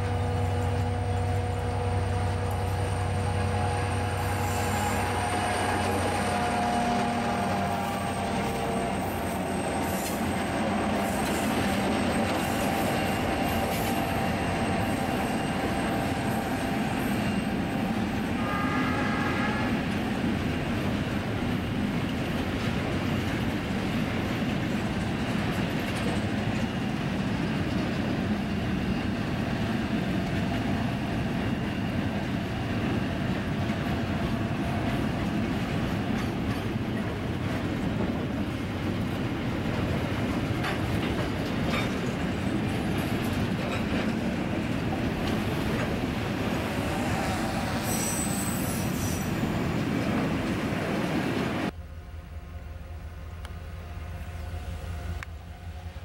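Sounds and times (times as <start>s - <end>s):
locomotive engines running: 0.0s - 56.0s
wagons rumbling over rails: 0.0s - 56.0s
high ringing tone: 2.6s - 6.6s, 7.4s - 19.8s, 46.7s - 49.6s.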